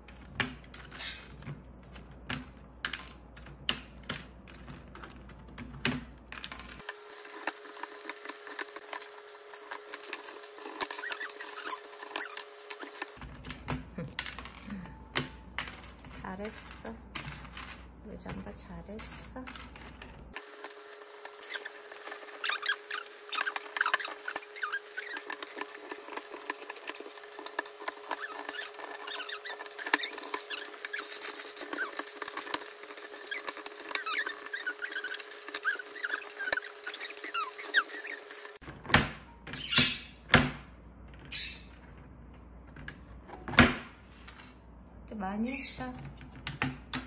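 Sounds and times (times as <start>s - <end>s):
parrot squeaks: 0.9s - 1.4s, 10.7s - 12.9s, 21.4s - 26.2s, 27.9s - 32.2s, 33.0s - 38.5s, 39.6s - 40.2s, 41.3s - 41.7s, 45.4s - 46.0s
plastic keycaps clicking and rattling: 23.3s - 38.5s.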